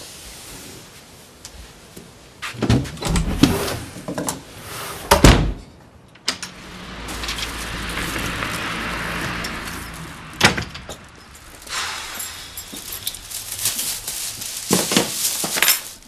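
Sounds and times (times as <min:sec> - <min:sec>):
door shutting with heavy thud: 0:05.1 - 0:05.6.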